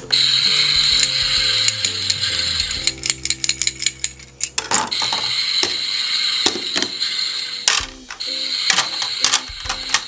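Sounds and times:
plastic toys clacking: 1.0s - 5.3s, 7.7s - 10.0s.

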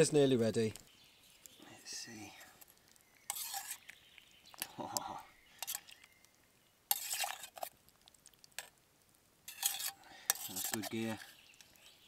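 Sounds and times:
metal ladle scraping a pot: 3.3s - 4.0s, 5.6s - 6.0s, 6.9s - 7.8s, 9.5s - 11.8s.

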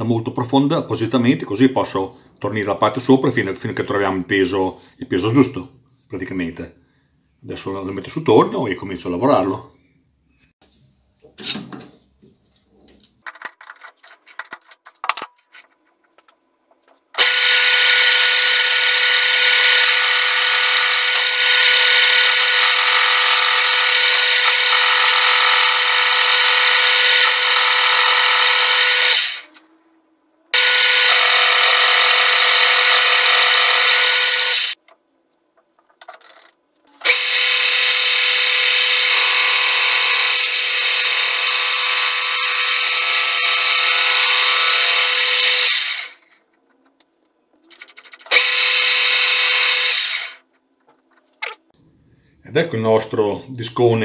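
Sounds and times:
metal clicks and knocks: 35.6s - 36.6s.

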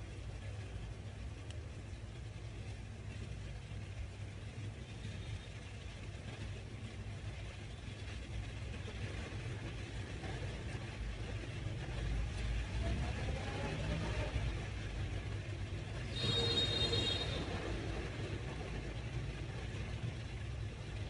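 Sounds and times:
steady low rumble: 0.0s - 16.3s.

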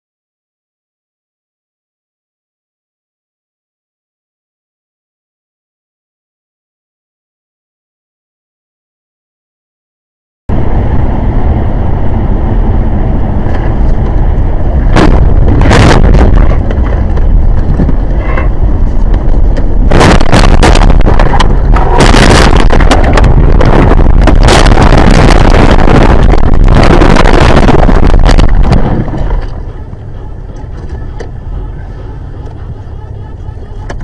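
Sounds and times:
distorted vehicle rumble: 10.5s - 34.0s
crackles and knocks: 13.4s - 29.8s.

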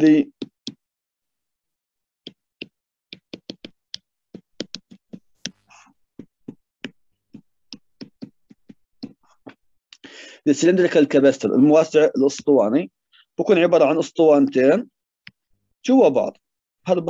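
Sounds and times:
stylus tapping on touchscreen: 0.3s - 0.8s, 2.2s - 9.6s.

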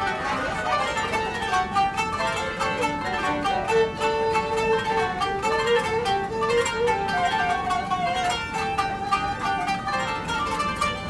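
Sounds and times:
plucked zither runs: 0.0s - 11.0s
violin sliding melody: 0.0s - 11.0s.

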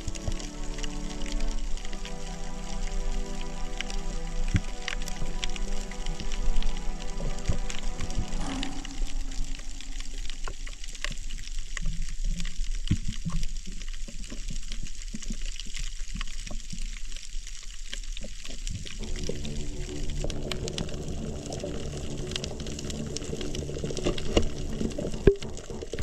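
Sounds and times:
underwater water hiss: 0.0s - 11.4s.

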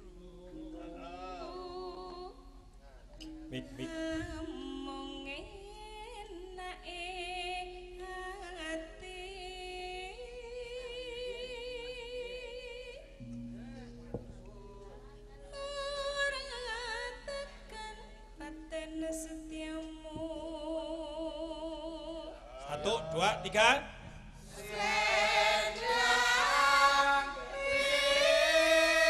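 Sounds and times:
woman singing with wide vibrato: 0.0s - 2.6s, 3.3s - 13.4s, 14.5s - 23.0s, 24.1s - 29.0s.

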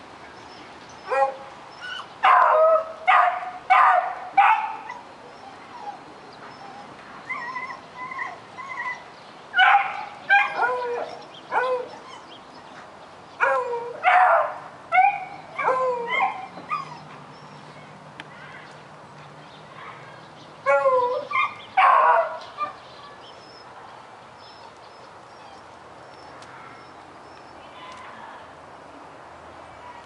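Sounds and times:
puppy barking: 2.2s - 5.0s, 9.6s - 11.9s, 13.4s - 16.9s, 20.7s - 22.8s
puppy whining yips: 15.0s - 17.1s, 24.5s - 25.7s.

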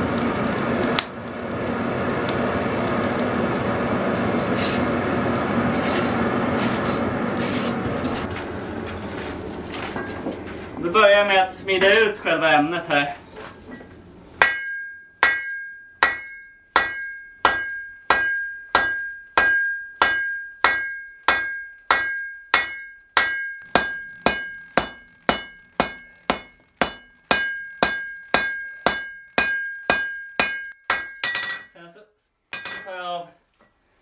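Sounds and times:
bright metallic ring: 4.6s - 4.9s, 13.7s - 33.3s
hammer striking iron on anvil: 14.4s - 31.9s, 32.5s - 33.1s.

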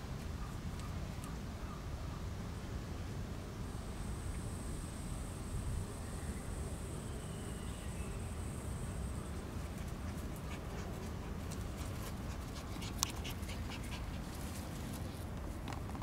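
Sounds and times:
puppy panting: 9.8s - 14.6s.

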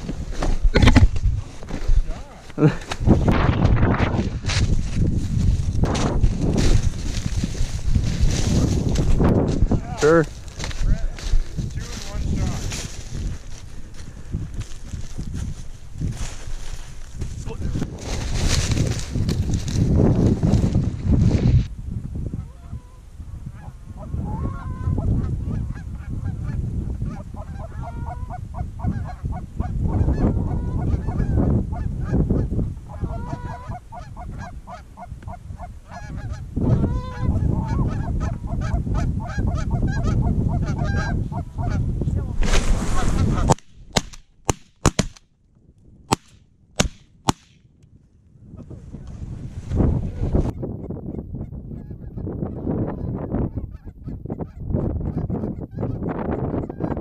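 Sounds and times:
wind rumble on microphone: 0.0s - 44.0s, 47.6s - 57.0s
geese honking and clucking: 22.4s - 23.0s, 23.6s - 41.9s, 43.0s - 43.6s, 50.4s - 57.0s
sharp cracks: 43.4s - 45.3s, 46.1s - 47.8s.

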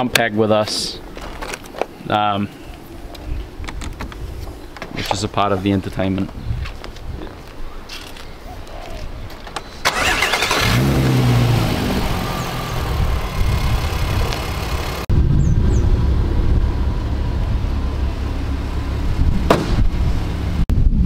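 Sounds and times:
car engine starting and idling: 9.8s - 15.1s.

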